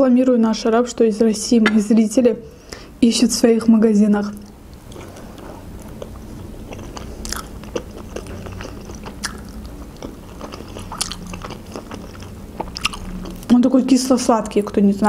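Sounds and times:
woman chewing food: 0:04.4 - 0:13.5.

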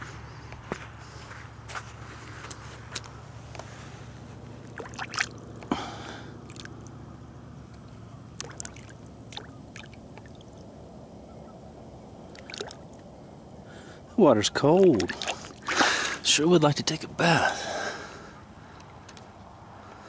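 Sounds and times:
steady low hum: 0:00.0 - 0:20.0
hand splashing in water: 0:04.7 - 0:05.4, 0:08.4 - 0:10.3, 0:12.3 - 0:12.8, 0:14.9 - 0:16.2.

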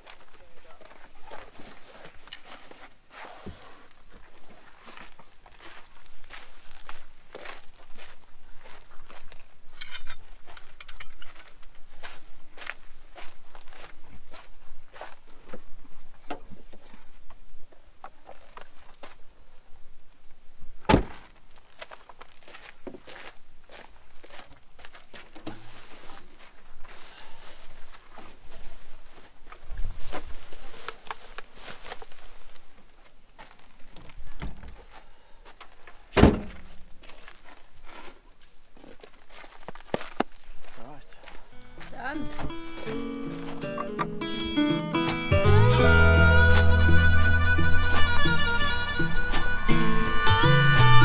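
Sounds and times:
car window glass thunk shut: 0:20.9 - 0:21.2, 0:36.2 - 0:36.6
sharp loud thump: 0:20.9 - 0:21.3, 0:36.2 - 0:36.6.

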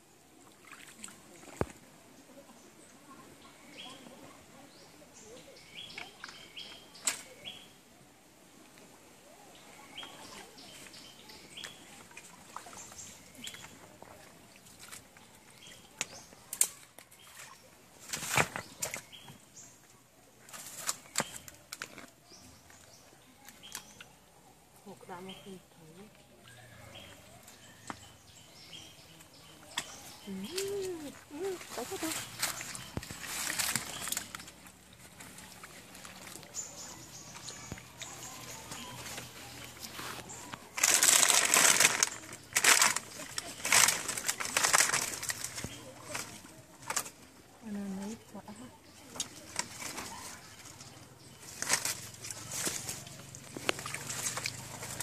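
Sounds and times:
leaves and undergrowth rustling: 0:00.2 - 0:55.0
twigs snapping: 0:16.0 - 0:17.1, 0:20.5 - 0:22.1, 0:31.6 - 0:36.6, 0:40.1 - 0:47.2, 0:51.5 - 0:55.0
plastic bag crinkling: 0:38.8 - 0:46.3.

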